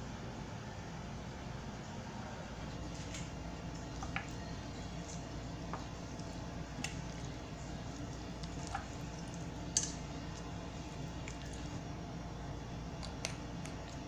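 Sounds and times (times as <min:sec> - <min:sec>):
steady low hum: 0:00.0 - 0:14.0
chopsticks stirring noodles: 0:05.0 - 0:12.0.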